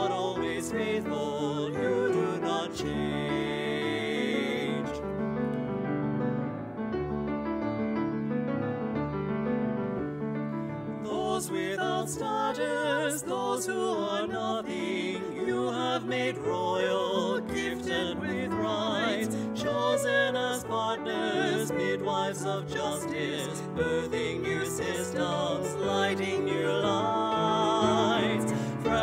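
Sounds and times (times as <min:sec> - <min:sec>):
hymn sung with vibrato: 0:00.0 - 0:05.0, 0:11.0 - 0:29.0.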